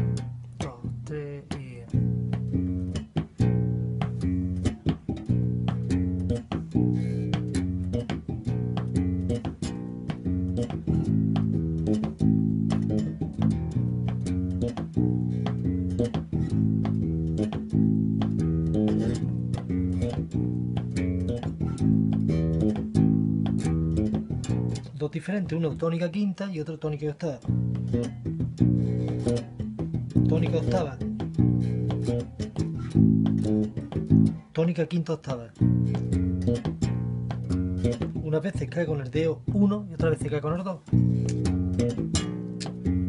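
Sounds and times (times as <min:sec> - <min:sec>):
electric bass fingerstyle: 0:00.0 - 0:43.0.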